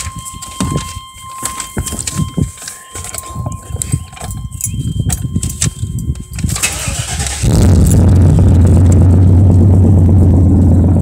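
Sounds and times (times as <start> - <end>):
keys jingling: 0.0 - 7.4
engine starter cranking: 6.4 - 8.3
pickup engine running loudly: 6.7 - 11.0.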